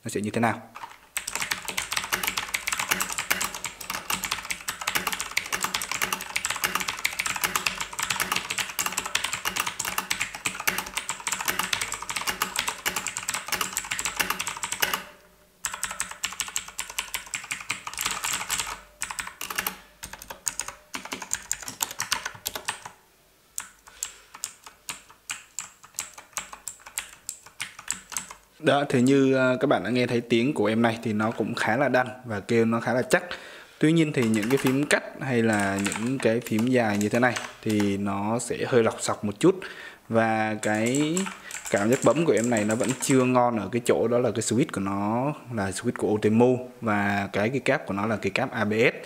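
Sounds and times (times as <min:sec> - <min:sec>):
mechanical keyboard typing: 0:00.8 - 0:23.0, 0:23.6 - 0:28.4, 0:34.1 - 0:37.9, 0:40.6 - 0:43.4.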